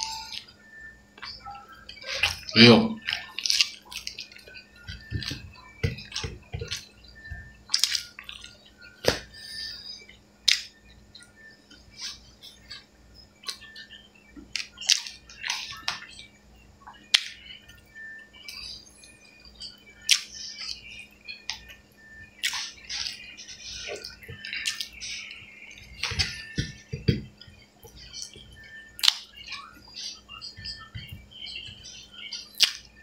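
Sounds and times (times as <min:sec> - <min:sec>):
person eating with wet smacks: 0:07.7 - 0:09.3, 0:22.4 - 0:23.2, 0:23.8 - 0:25.0, 0:32.6 - 0:32.9.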